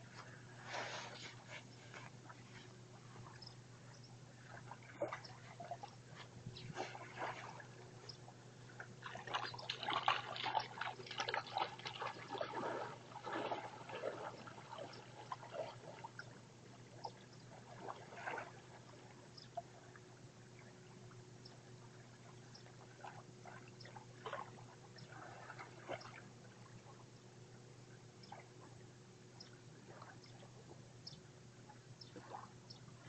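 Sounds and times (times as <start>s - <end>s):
water splashing around wading legs: 4.4s - 19.1s.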